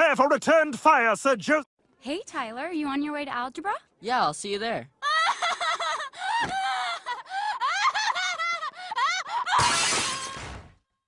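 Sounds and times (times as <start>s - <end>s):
cartoon girl laughing: 5.0s - 10.2s
window shattering: 9.6s - 10.7s.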